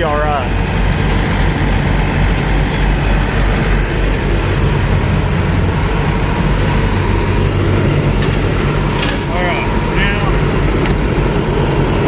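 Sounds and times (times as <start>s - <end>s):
diesel truck engine droning: 0.0s - 12.0s.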